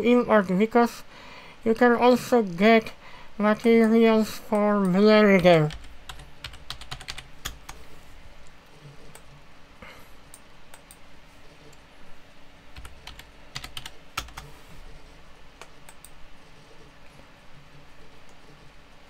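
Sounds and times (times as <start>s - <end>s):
keyboard typing clicks: 5.7s - 7.8s, 12.8s - 14.5s, 15.6s - 16.2s.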